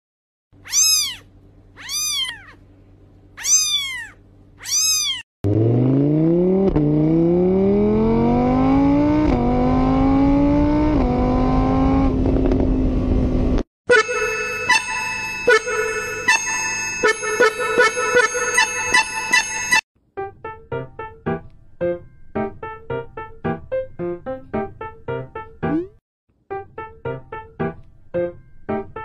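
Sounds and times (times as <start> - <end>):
kitten mewing: 0.6 - 2.6, 3.4 - 5.2
engine-like whine climbing: 5.4 - 13.6
music: 13.9 - 29.0.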